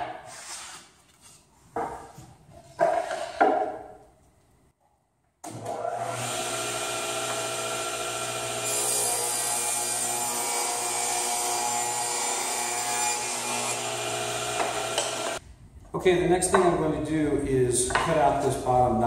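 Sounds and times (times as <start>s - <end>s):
saw cutting plywood: 5.5s - 15.4s
table saw motor hum: 5.5s - 15.4s.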